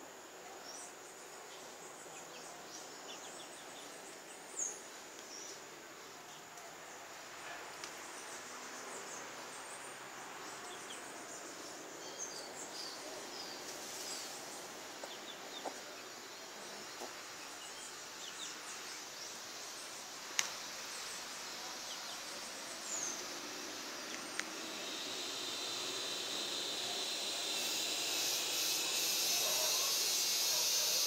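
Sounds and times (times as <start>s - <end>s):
steady background hiss: 0.0s - 31.0s
birds chirping: 7.5s - 31.0s.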